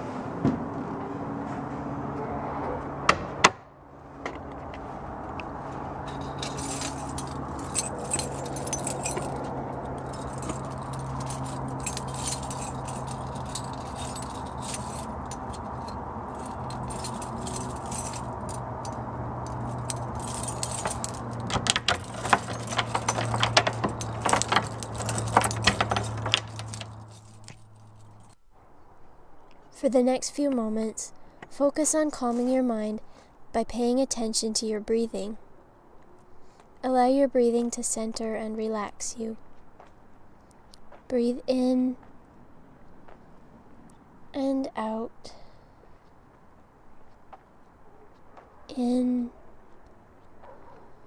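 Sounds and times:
keys jangling: 6.0s - 28.4s.

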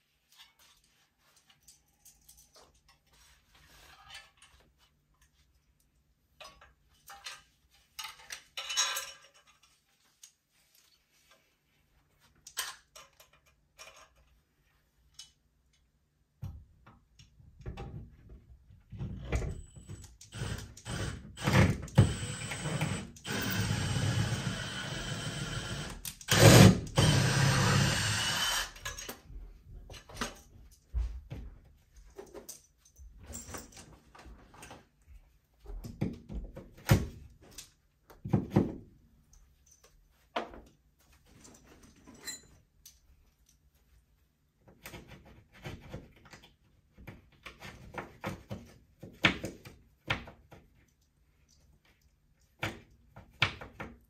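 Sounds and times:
power drill drilling wall: 19.8s - 28.9s.

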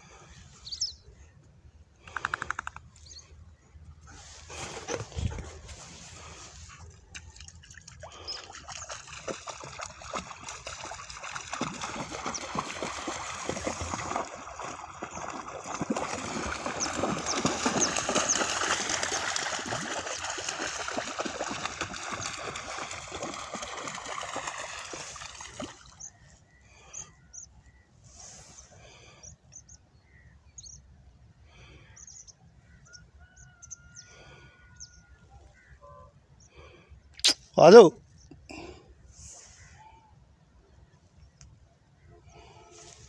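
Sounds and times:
dogs splashing through water: 4.4s - 26.2s.

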